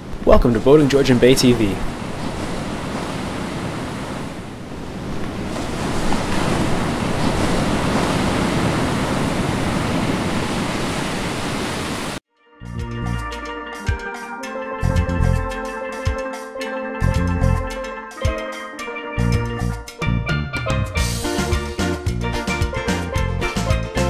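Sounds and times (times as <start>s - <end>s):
waves breaking: 0.0s - 12.2s
steel drum music: 12.6s - 24.0s.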